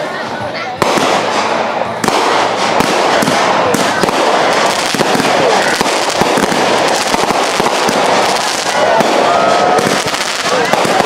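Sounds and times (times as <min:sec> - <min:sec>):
fireworks bangs and crackling pops: 0:00.0 - 0:11.0.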